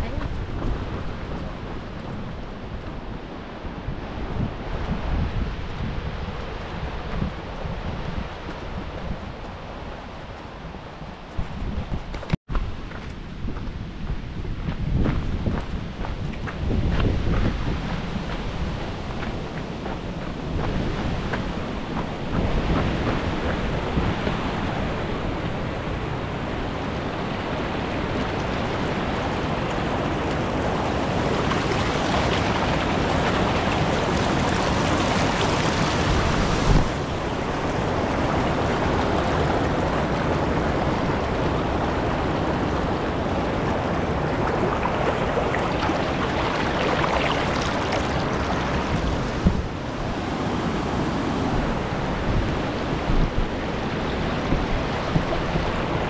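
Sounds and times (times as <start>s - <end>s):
river rapids rushing over rocks: 26.4s - 56.0s.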